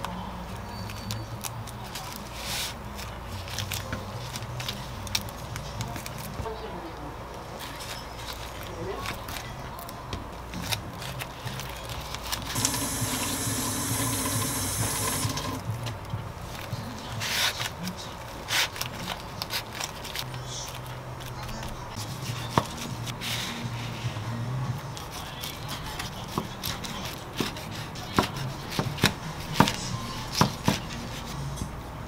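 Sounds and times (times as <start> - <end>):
water running: 12.5 - 15.7.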